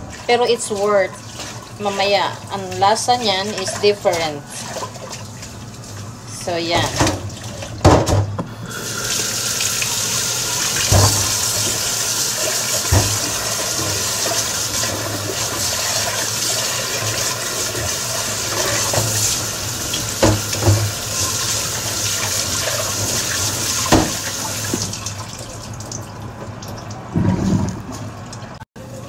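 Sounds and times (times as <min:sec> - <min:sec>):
tap running into a sink: 0:09.5 - 0:28.4
sharp knocks at the sink: 0:20.2 - 0:20.9, 0:23.9 - 0:24.2.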